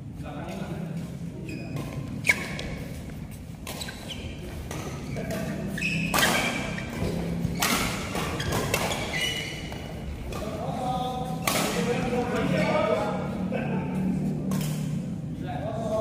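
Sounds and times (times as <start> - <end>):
rackets striking shuttlecock: 4.8 - 10.6, 11.4 - 12.1.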